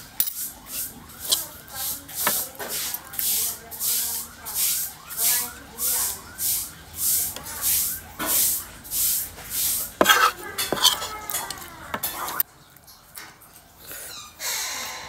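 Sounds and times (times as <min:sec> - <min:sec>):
metal spoon scraping a plate: 0:09.5 - 0:12.4.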